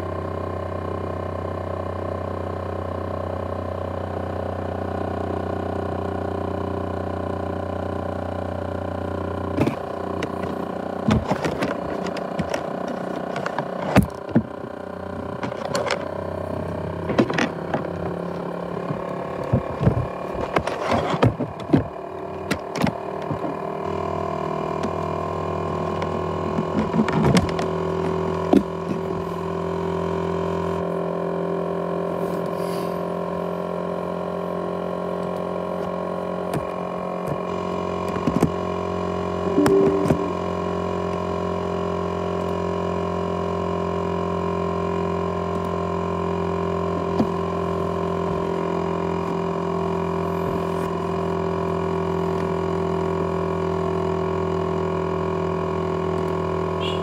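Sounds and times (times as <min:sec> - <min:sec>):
laptop fan whining: 0:39.4 - 0:41.0.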